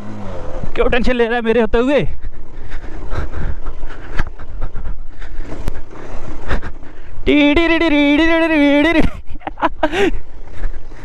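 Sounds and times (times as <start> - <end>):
motorcycle on rocky track: 0.0 - 11.0
wind: 0.0 - 11.0.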